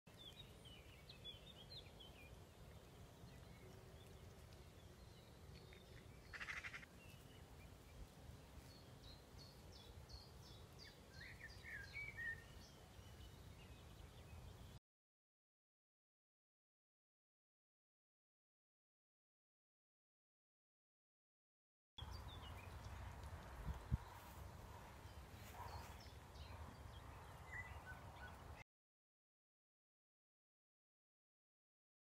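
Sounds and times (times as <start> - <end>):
faint birds chirping: 0.1 - 14.8, 22.0 - 28.6.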